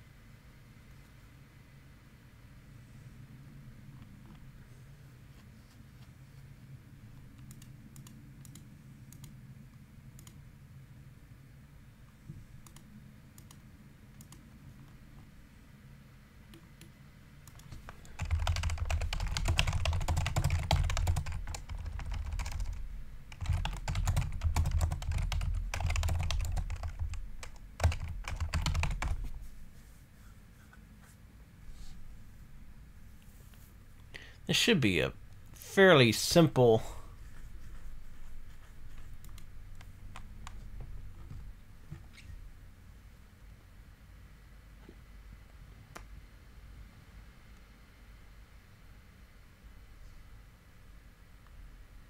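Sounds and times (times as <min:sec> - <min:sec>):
low steady hum: 0:00.0 - 0:52.0
fast typing on keyboard: 0:17.5 - 0:29.3.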